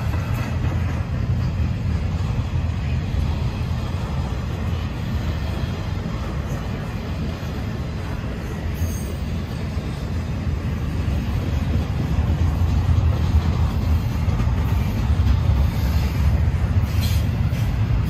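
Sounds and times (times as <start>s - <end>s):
freight train wheels rumbling: 0.0s - 18.0s.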